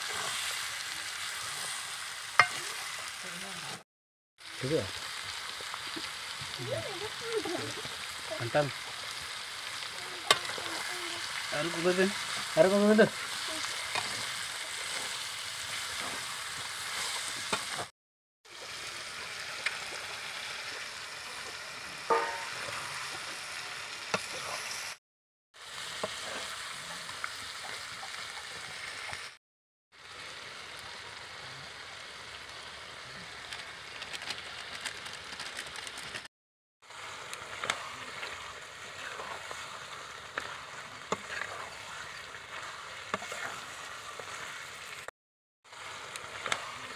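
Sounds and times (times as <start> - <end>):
curry sizzling in a pan: 0.0 - 3.8, 4.4 - 17.9, 18.5 - 25.0, 25.6 - 34.0, 36.8 - 46.9
metal spatula scraping a pan: 39.0 - 44.5.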